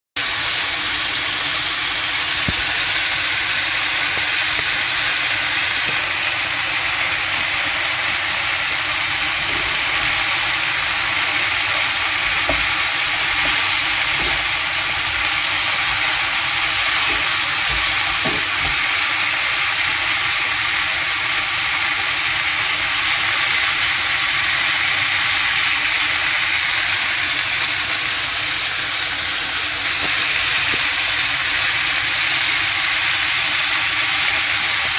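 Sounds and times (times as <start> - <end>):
vegetables sizzling in a frying pan: 0.2 - 34.9
wooden spoon knocking: 9.2 - 19.0.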